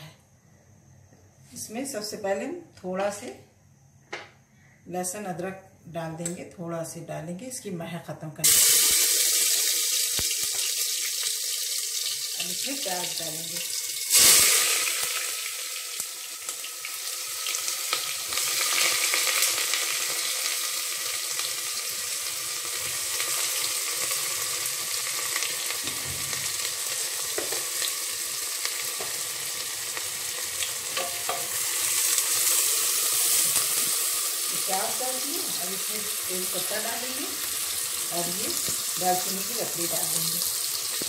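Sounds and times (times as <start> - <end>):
onions sizzling in oil: 8.4 - 41.0.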